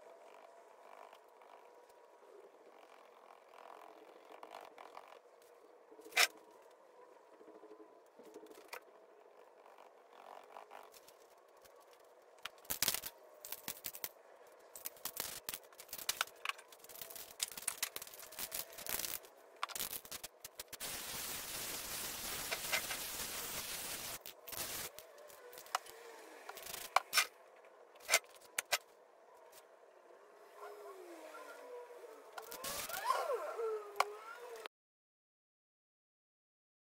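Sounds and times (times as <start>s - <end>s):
spray-paint cans clicking and scraping: 10.2s - 14.1s, 14.7s - 27.3s
spray can hissing: 18.8s - 25.0s.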